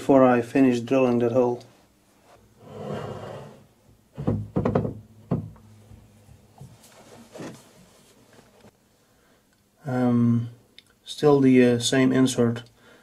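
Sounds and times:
soft metal handling noises: 5.7s - 8.8s.

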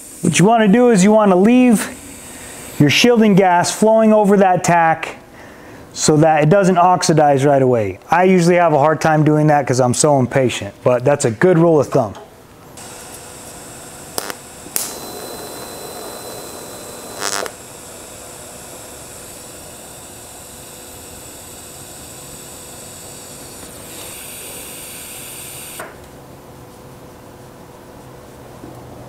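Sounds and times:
shielding gas hissing: 0.0s - 3.5s
welding torch click: 12.8s - 17.7s
welding arc crackling: 12.8s - 25.8s.

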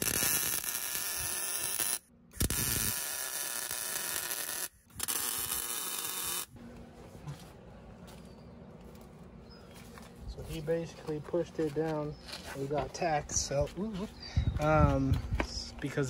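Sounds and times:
welding arc crackling buzz: 0.0s - 6.6s.

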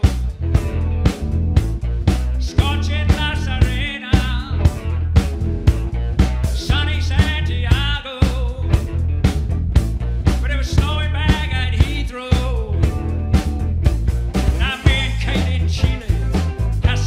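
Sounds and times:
bass guitar: 0.0s - 17.0s
drum kit steady beat: 0.0s - 17.0s
electric guitars: 0.0s - 17.0s
male lead vocal: 2.4s - 5.0s, 6.5s - 8.8s, 10.4s - 12.9s, 14.6s - 17.0s.

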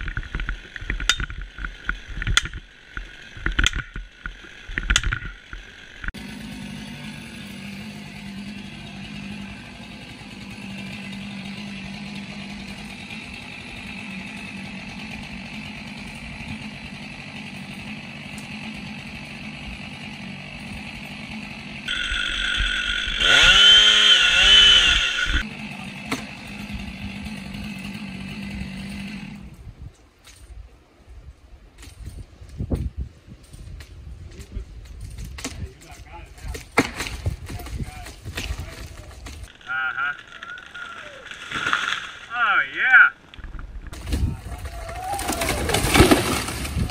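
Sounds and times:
chainsaw cutting: 0.0s - 29.7s, 34.9s - 42.6s, 43.9s - 46.9s
hatchet chopping tree trunk: 36.4s - 39.5s, 45.2s - 46.9s.

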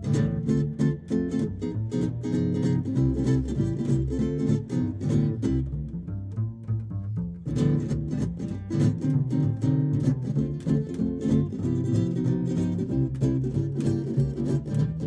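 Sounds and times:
archtop guitar: 0.0s - 15.0s
nylon-string guitar: 0.0s - 15.0s
plucked upright double bass: 0.0s - 15.0s.

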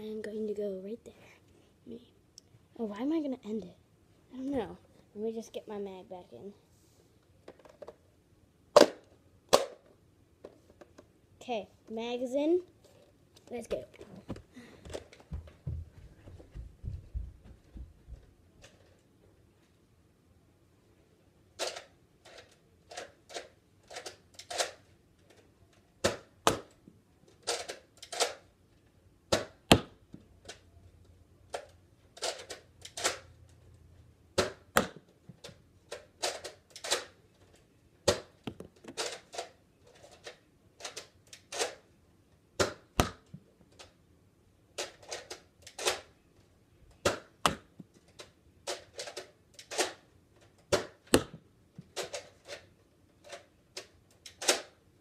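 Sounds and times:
toy blaster plastic clacks: 27.4s - 28.4s, 31.5s - 33.3s, 35.9s - 37.2s, 48.1s - 51.1s, 52.0s - 54.8s.

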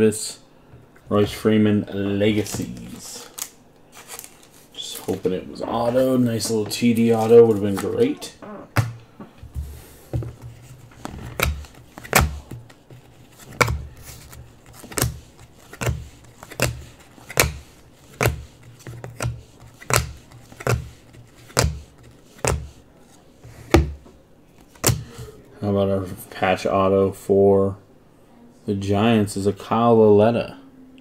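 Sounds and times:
cards tapping onto a table: 9.6s - 22.8s, 24.7s - 25.1s.

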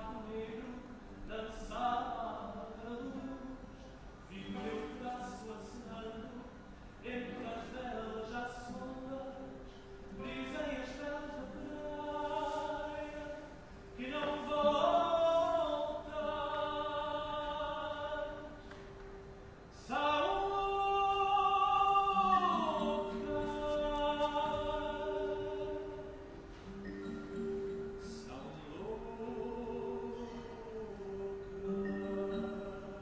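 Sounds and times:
person singing long held notes: 19.8s - 26.8s.

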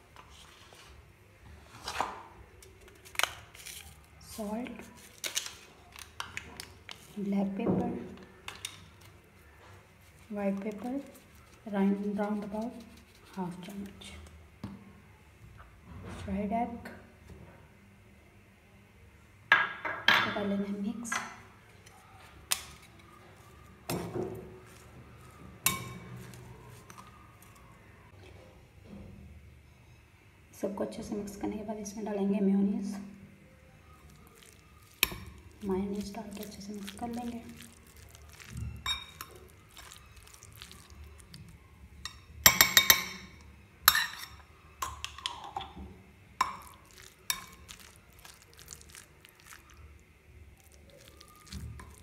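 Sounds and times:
spoon clinking on glass bowl: 38.4s - 40.0s, 42.0s - 45.6s, 46.4s - 48.4s.

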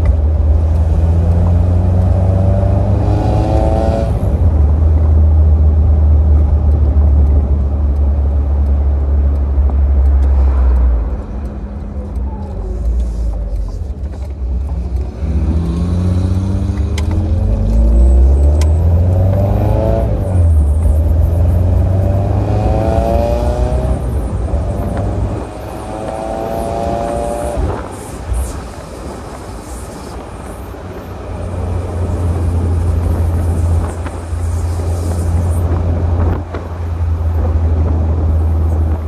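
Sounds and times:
car engine accelerating: 0.0s - 28.0s.

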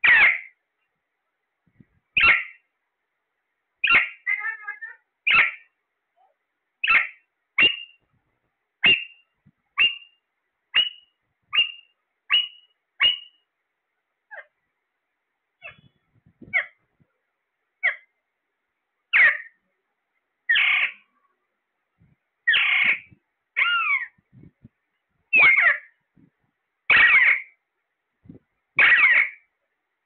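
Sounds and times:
parakeet calling: 0.0s - 0.6s, 2.2s - 2.7s, 3.8s - 5.8s, 6.8s - 8.0s, 8.8s - 13.4s, 15.6s - 16.8s, 17.8s - 18.1s, 19.1s - 19.6s, 20.5s - 21.1s, 22.4s - 24.2s, 25.3s - 26.0s, 26.9s - 27.6s, 28.8s - 29.5s
parakeet chatter: 0.0s - 0.6s, 2.2s - 2.6s, 3.8s - 5.7s, 6.8s - 8.0s, 8.8s - 9.2s, 10.8s - 13.4s, 15.6s - 16.8s, 19.1s - 19.6s, 20.5s - 21.1s, 22.5s - 24.2s, 25.3s - 26.0s, 26.9s - 27.6s, 28.8s - 29.4s.

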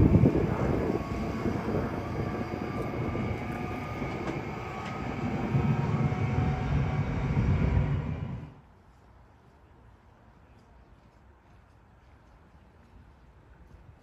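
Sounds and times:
electric train low rumble: 0.0s - 11.0s.

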